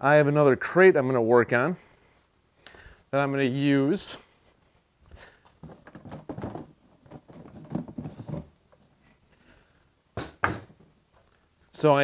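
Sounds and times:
plastic crate knocking and clattering: 5.6 - 8.6.

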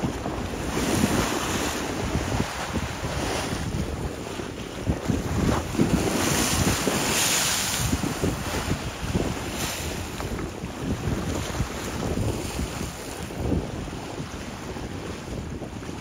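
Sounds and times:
choppy lake waves: 0.0 - 16.0
wind buffeting microphone: 0.0 - 16.0
breaking water rush: 5.1 - 11.4.

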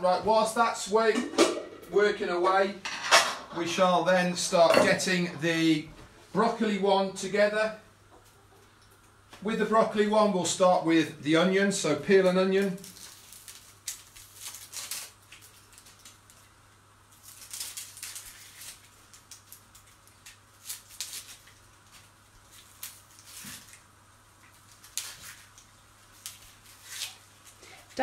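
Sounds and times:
onion skin crackling: 12.1 - 28.0.

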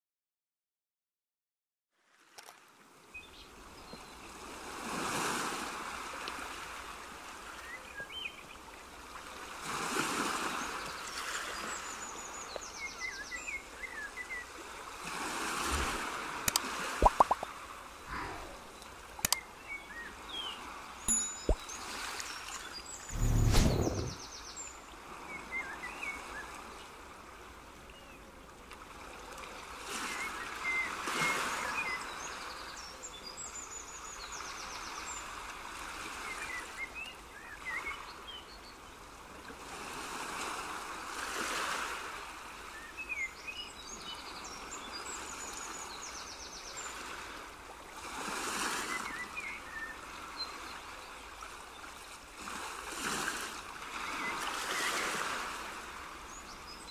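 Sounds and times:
rushing water: 13.7 - 24.2
low thump: 23.2 - 24.2.

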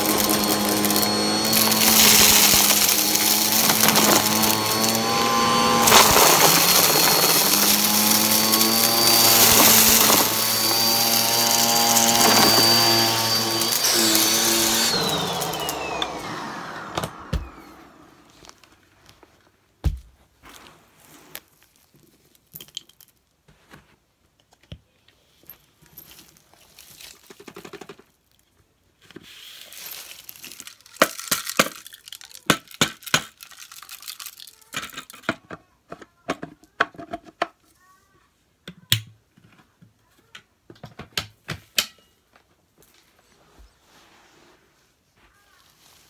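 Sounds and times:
dust and grit rustling onto carpet: 20.3 - 22.0.

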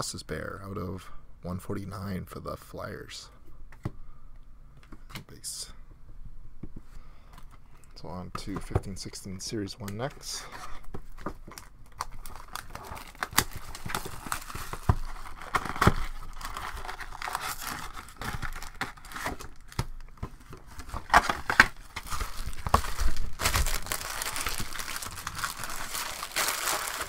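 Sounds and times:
wrappers tearing and crinkling: 11.5 - 19.9, 20.7 - 27.0.

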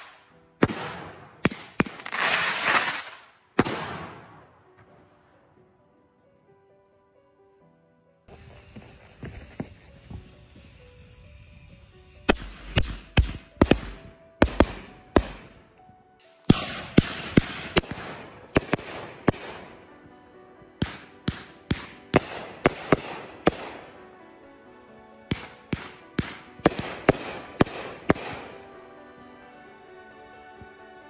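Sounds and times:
firework cake firing shots: 0.0 - 4.5, 12.2 - 15.6, 16.5 - 19.7, 20.8 - 23.8, 25.3 - 28.6
background music: 0.0 - 31.0.

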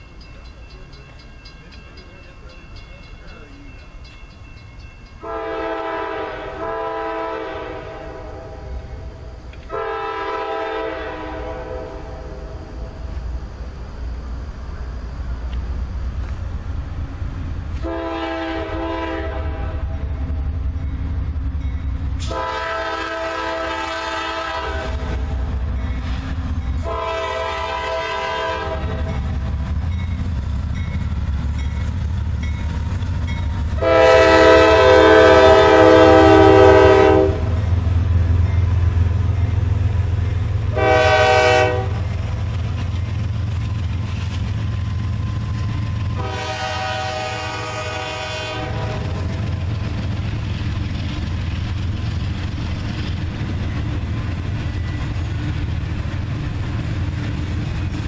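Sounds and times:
train rumbling past: 0.0 - 58.0
locomotive air horn blasts: 5.2 - 12.6, 17.8 - 20.2, 22.2 - 25.4, 26.8 - 29.1, 33.7 - 37.7, 40.7 - 42.1, 46.1 - 49.2.

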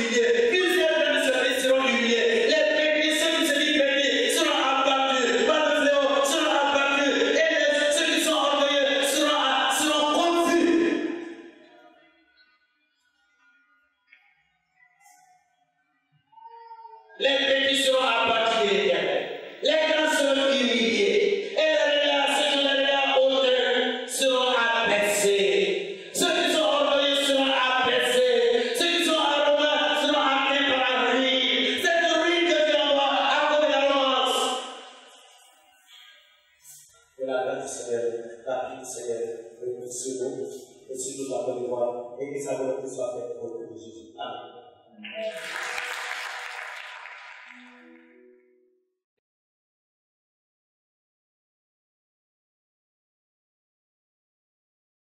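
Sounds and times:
man chanting into microphone: 17.2 - 34.8.

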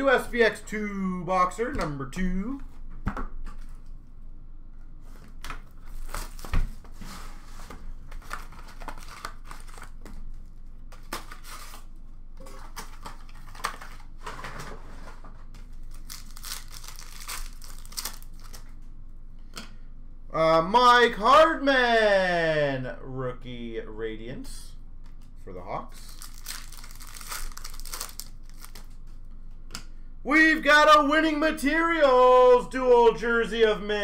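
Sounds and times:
wrappers tearing and crinkling: 8.2 - 14.1, 15.7 - 18.8, 26.0 - 29.0.

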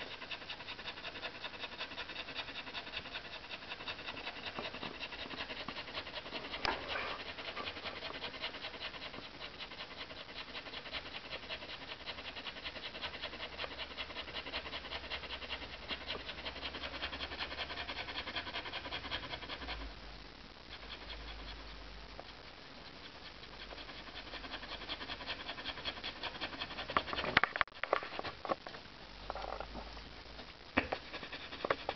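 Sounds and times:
dog panting: 0.0 - 20.0, 20.6 - 28.5, 30.8 - 31.9.

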